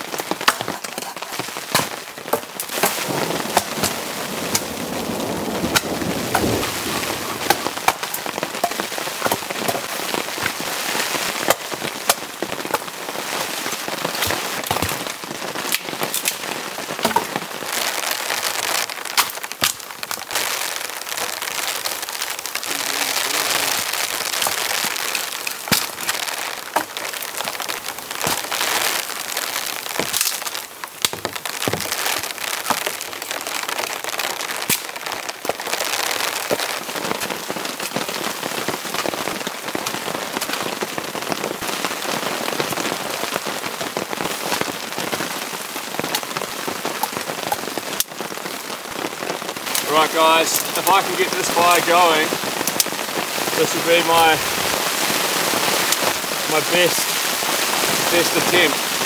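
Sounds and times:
wet branches cracking: 0.0s - 10.7s, 14.1s - 38.1s
heavy rain falling: 0.0s - 59.0s
branches dragged: 2.6s - 11.6s.

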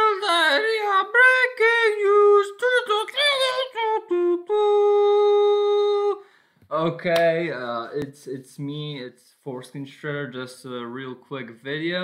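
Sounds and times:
person singing unaccompanied jingle: 0.0s - 6.2s.

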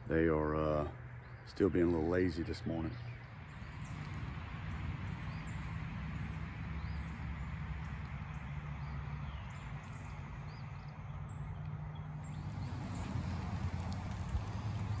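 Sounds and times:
small birds chirping: 0.1s - 15.0s
steady low rumble: 9.5s - 15.0s
footsteps on grass: 12.3s - 15.0s.

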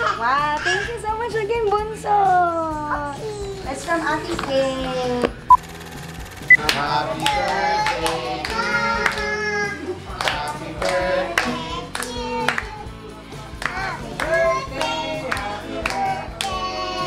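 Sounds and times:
electronic countdown beep: 5.5s - 6.6s
people clapping in rhythm: 6.5s - 17.0s
woman and children singing: 6.6s - 12.9s, 13.6s - 17.0s.

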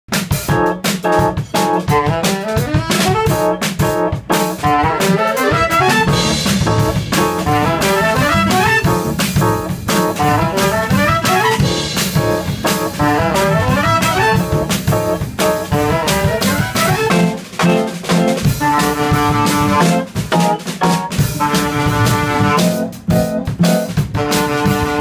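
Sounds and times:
drum kit: 0.1s - 25.0s
trumpet: 0.2s - 25.0s
saxophone: 1.2s - 17.8s, 18.4s - 20.6s, 21.2s - 25.0s
double bass: 4.6s - 17.8s, 18.5s - 20.1s, 21.2s - 25.0s.

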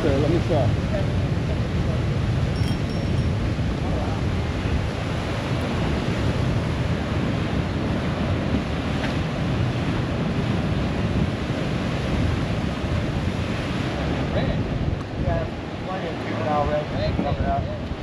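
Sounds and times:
surf washing around pilings: 0.0s - 18.0s
wind buffeting microphone: 0.0s - 18.0s.

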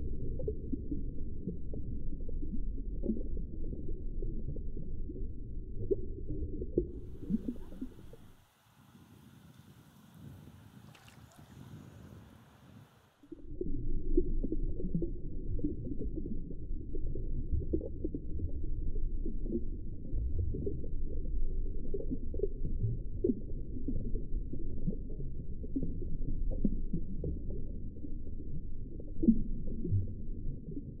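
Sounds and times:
muffled underwater rumble: 0.0s - 31.0s
soft underwater knocks: 7.0s - 8.4s.

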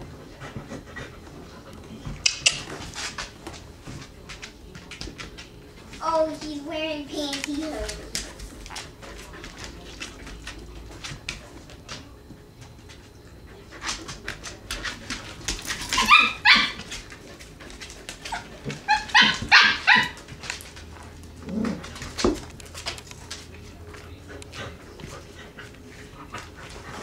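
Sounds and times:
puppies yipping and barking: 15.7s - 16.9s, 18.3s - 20.3s.

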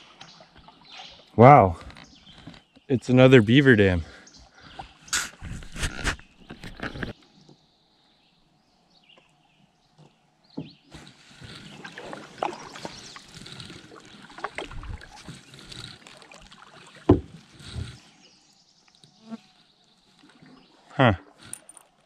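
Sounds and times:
wooden paddle knocking canoe: 0.0s - 2.9s, 9.9s - 18.0s
water splashing off paddle: 11.0s - 18.0s.

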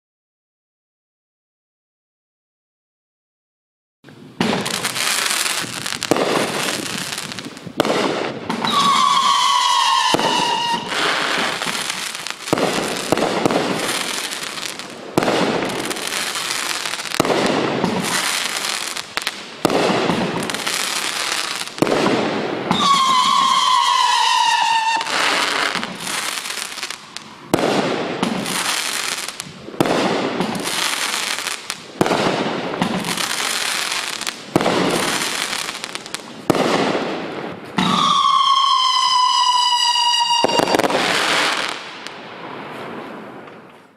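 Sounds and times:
crackling firework tails: 4.1s - 43.9s
sharp firework bursts: 4.4s - 43.4s
firework launches: 4.4s - 43.7s
falling howling whistle: 8.7s - 11.1s, 22.8s - 25.2s, 37.8s - 40.9s.

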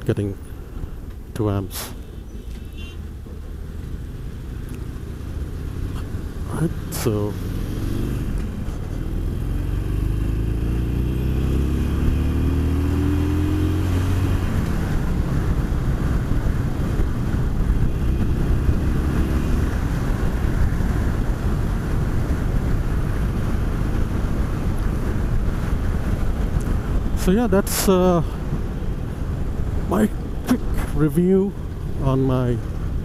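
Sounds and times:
wind and road noise: 0.0s - 33.0s
motorcycle engine accelerating: 3.4s - 27.0s.

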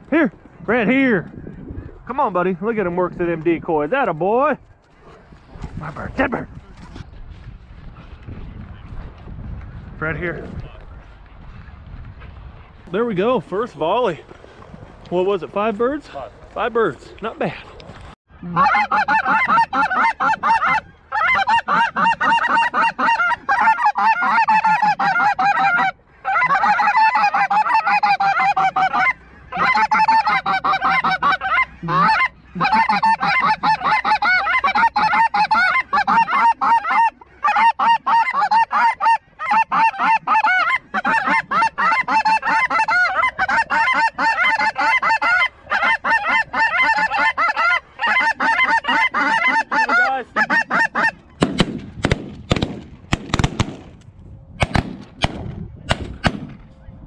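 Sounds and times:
geese honking: 18.4s - 51.5s.

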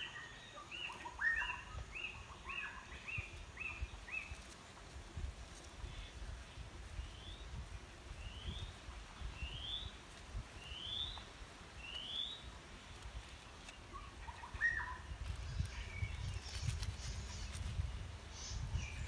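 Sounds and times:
bird whistled calls: 0.0s - 3.8s, 14.0s - 15.1s
low rustling background: 0.7s - 19.0s.

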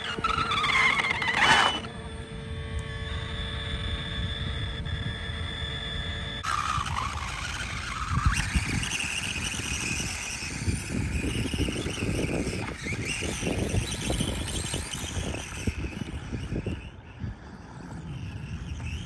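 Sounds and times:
electric motor whining: 0.0s - 19.0s.

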